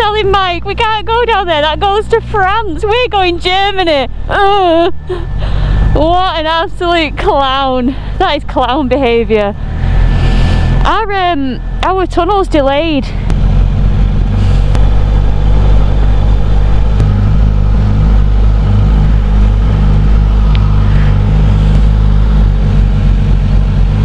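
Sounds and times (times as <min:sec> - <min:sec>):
motorcycle engine idling: 0:10.8 - 0:24.0.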